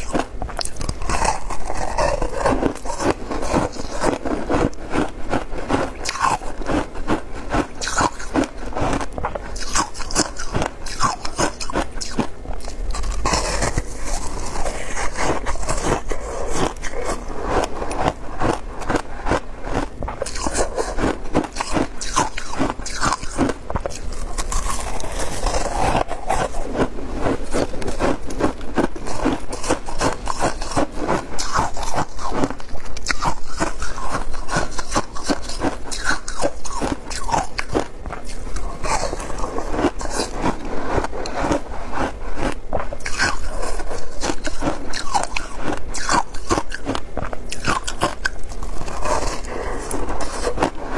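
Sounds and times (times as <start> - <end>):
shaved ice crunching: 9.6 - 46.9.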